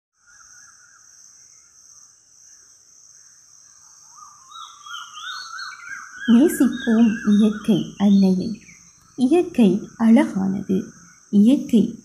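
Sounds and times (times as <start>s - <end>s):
high insect drone: 0.2s - 12.0s
birds calling: 3.8s - 12.0s
repeated bird chirps: 4.6s - 12.0s.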